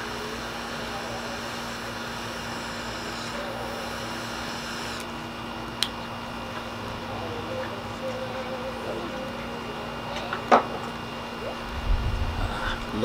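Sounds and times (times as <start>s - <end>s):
lighter hissing: 0.0s - 5.2s
steady low hum: 0.0s - 13.0s.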